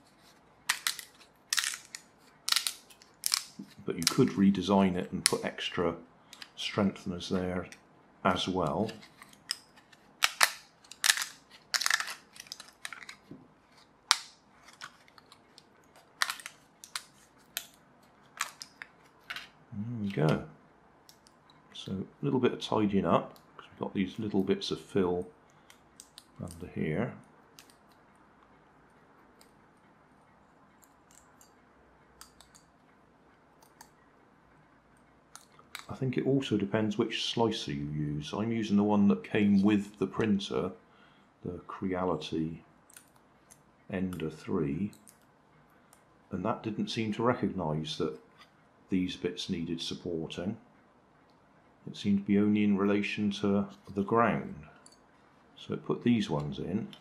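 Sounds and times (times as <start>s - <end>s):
quiet crackling: 0.0s - 57.0s
plastic snapping: 0.7s - 4.4s, 9.2s - 19.5s.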